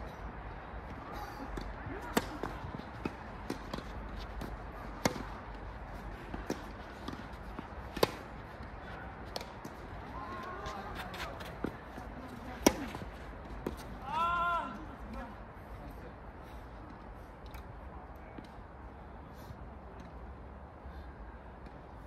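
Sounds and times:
tennis racket hitting ball: 1.6 - 5.6, 6.2 - 8.4, 10.7 - 13.9.

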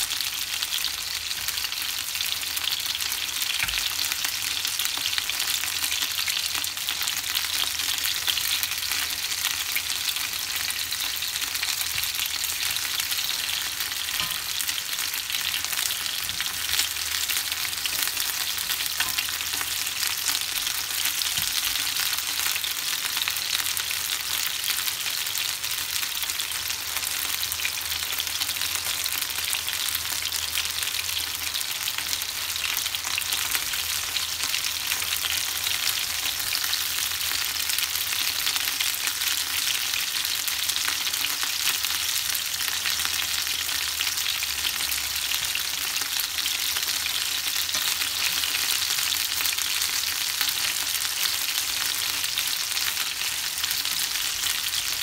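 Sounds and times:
chicken wings sizzling in oil: 0.0 - 55.0.

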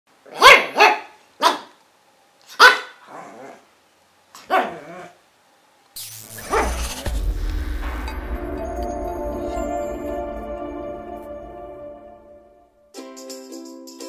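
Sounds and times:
dog barking: 0.3 - 1.8, 2.5 - 3.1, 4.4 - 5.1
dog yelping: 0.3 - 1.8, 2.5 - 3.6, 4.4 - 5.2
music with whoosh: 6.0 - 13.4.

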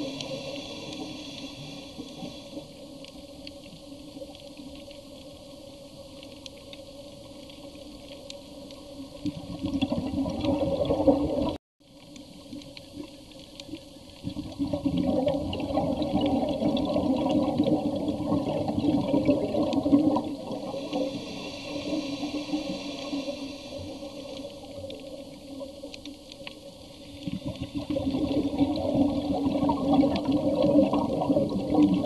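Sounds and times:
underwater rushing and bubbling: 0.0 - 32.0.

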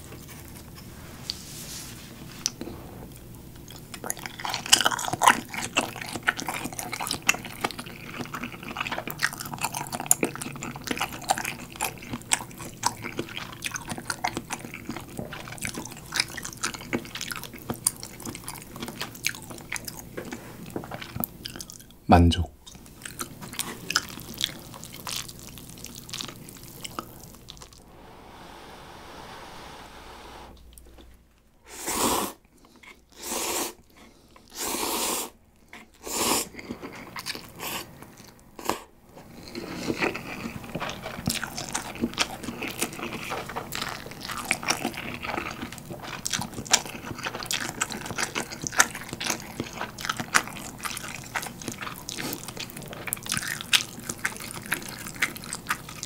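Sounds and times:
wet chewing: 3.6 - 21.9, 39.4 - 56.0
slurping noodles: 31.7 - 35.4.

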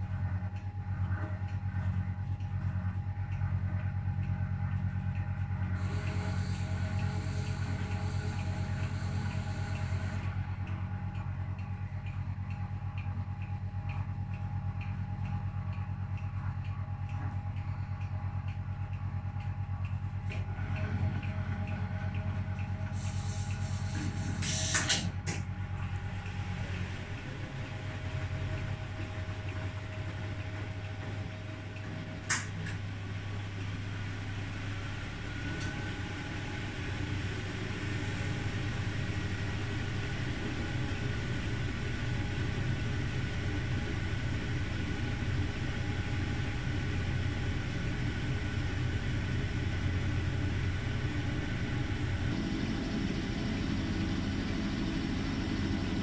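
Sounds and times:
washing machine motor humming: 0.0 - 56.0
sharp clicks: 28.5 - 32.8.

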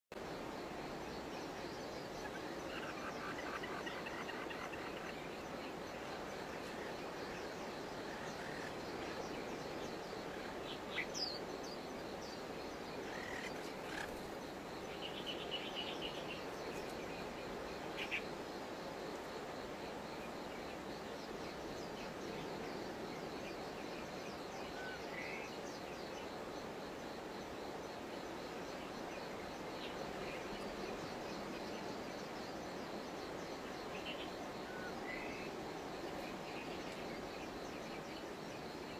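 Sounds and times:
steady background hiss: 0.1 - 38.9.

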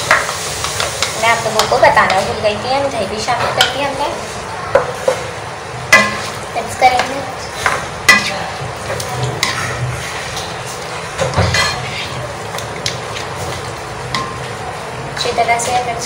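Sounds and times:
food sizzling in a wok: 0.0 - 16.0
spatula scraping and knocking pan: 5.9 - 14.5.

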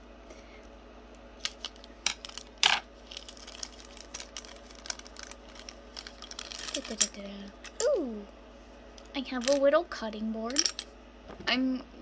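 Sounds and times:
plastic packaging crinkling: 3.0 - 7.0.

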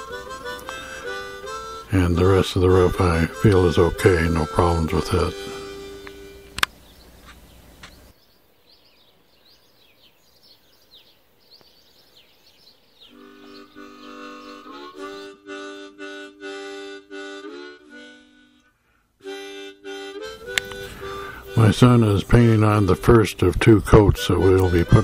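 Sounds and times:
harmonica playing held chords: 0.0 - 6.7, 13.1 - 25.0.

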